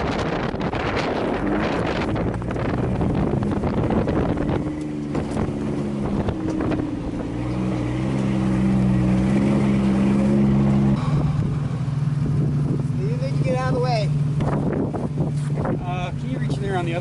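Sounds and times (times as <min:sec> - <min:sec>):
truck engine under load: 0:00.0 - 0:17.0
wind on microphone: 0:00.0 - 0:17.0.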